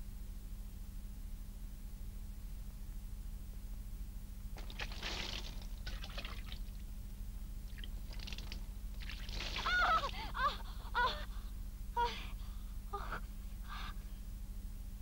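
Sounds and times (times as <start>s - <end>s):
low hum: 0.0s - 15.0s
water pouring and splashing: 4.6s - 6.8s, 7.7s - 10.2s
woman gasping cries: 9.6s - 11.4s, 12.0s - 13.2s.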